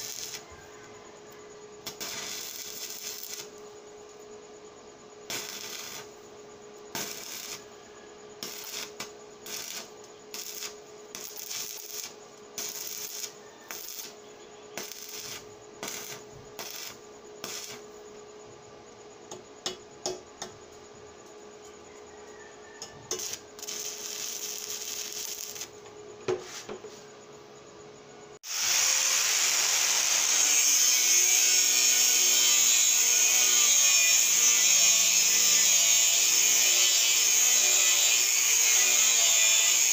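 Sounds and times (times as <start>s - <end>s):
welding arc crackling: 0.0s - 0.4s, 1.8s - 3.6s, 5.3s - 6.2s, 6.9s - 7.6s, 8.4s - 14.2s, 14.8s - 17.8s, 23.1s - 25.7s, 28.4s - 39.9s.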